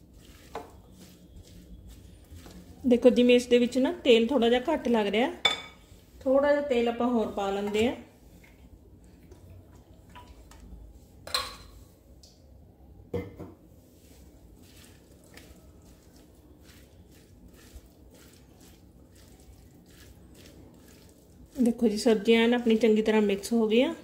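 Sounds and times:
spatula scraping glass bowl: 0.1s - 3.5s.

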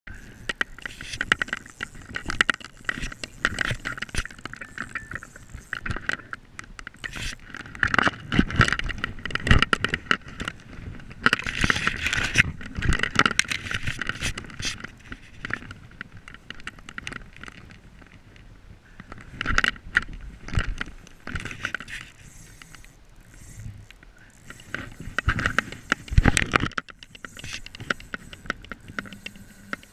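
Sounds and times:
spinning reel clicking: 0.1s - 8.0s, 21.7s - 29.9s.

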